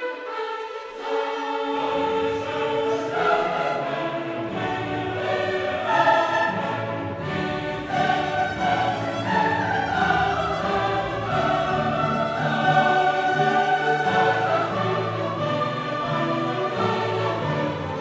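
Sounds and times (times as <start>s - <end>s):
choral singing with orchestra: 0.0s - 18.0s.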